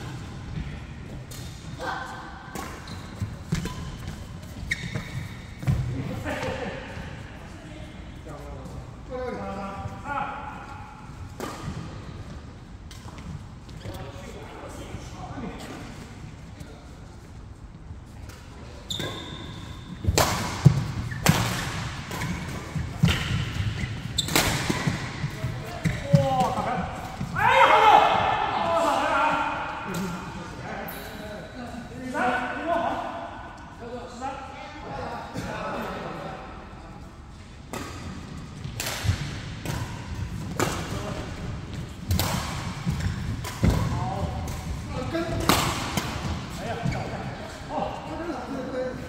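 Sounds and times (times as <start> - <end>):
racket hitting shuttlecock: 20.0 - 27.3, 37.7 - 46.6.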